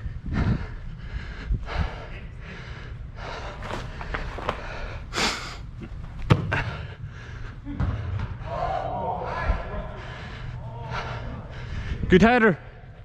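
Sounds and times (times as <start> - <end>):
person breathing hard: 0.0 - 5.8, 6.5 - 8.2, 9.2 - 12.1
ball being kicked: 6.2 - 6.6.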